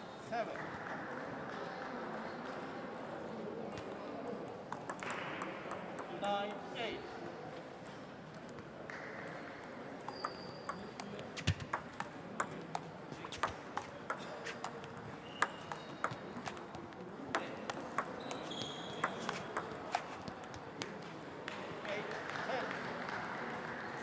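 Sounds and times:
table tennis ball clicking: 4.7 - 6.3, 10.0 - 21.0.

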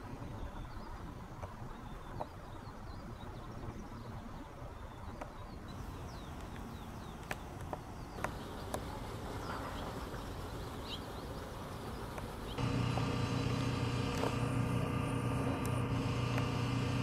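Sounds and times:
small birds chirping: 0.1 - 17.0
low outdoor rumble: 5.6 - 17.0.

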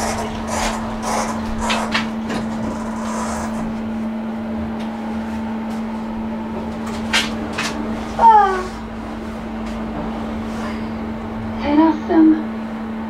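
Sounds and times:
elevator running hum: 0.0 - 13.0.

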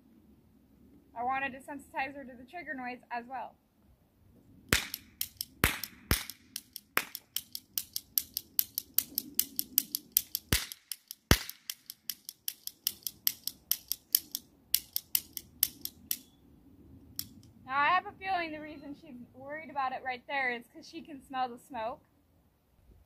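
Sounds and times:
loud cap gun snaps: 4.7 - 16.3
toy cap gun clicking: 4.7 - 16.3, 17.2 - 17.5.

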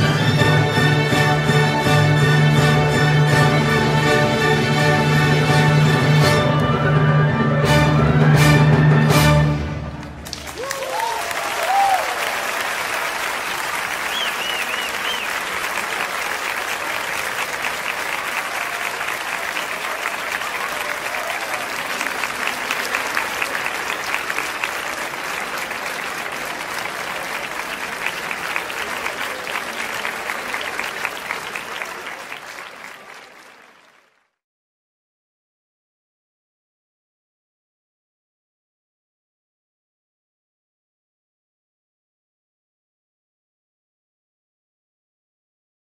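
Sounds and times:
large audience applauding: 10.0 - 34.4.

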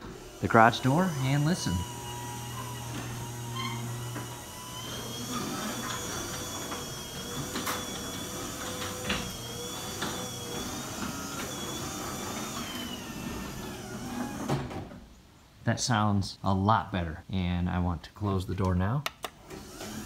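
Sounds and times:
garage door opener clicks: 0.0 - 14.9, 19.4 - 20.0
garage door opener running: 0.0 - 14.9, 19.4 - 20.0.

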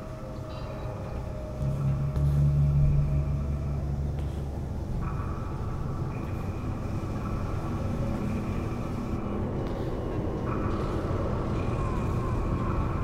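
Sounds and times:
furnace low rumble: 0.0 - 13.0.

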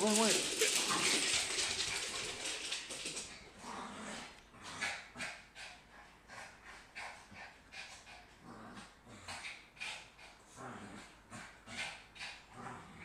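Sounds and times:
small dog panting: 4.7 - 12.6.

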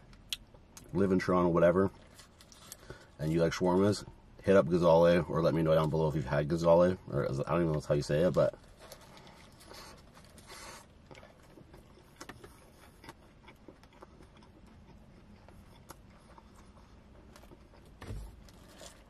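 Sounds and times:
close-up chewing: 8.4 - 19.0.

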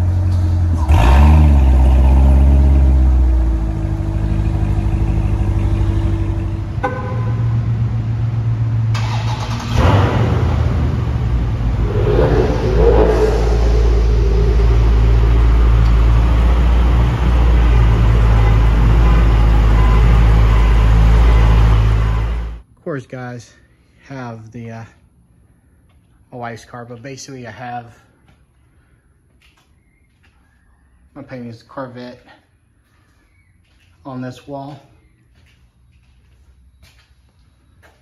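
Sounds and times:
car engines idling: 0.0 - 22.6.

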